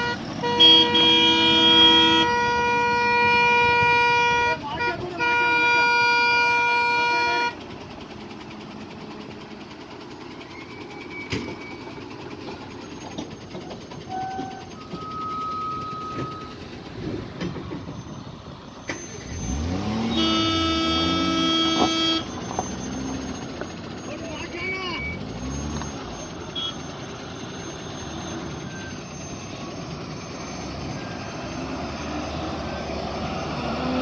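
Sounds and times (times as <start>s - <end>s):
truck horn blaring: 0.0s - 7.8s, 14.1s - 16.6s, 19.4s - 25.8s, 26.4s - 26.9s
traffic rumble: 0.0s - 34.0s
truck engine revving: 0.0s - 34.0s
short faint horn toots: 20.1s - 22.3s.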